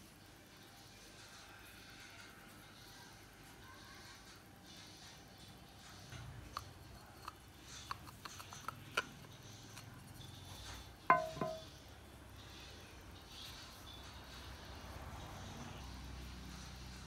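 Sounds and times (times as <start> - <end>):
mold dish knocking on table: 11.1 - 11.7.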